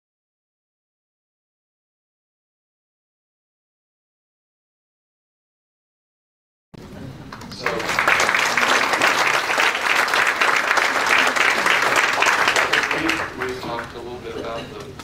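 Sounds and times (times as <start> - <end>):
audience applauding: 7.3 - 14.0.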